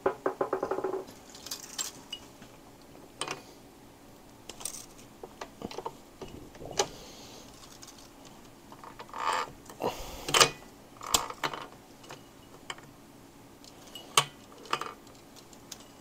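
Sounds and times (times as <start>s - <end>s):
metal parts and tools clinking: 1.2s - 2.3s.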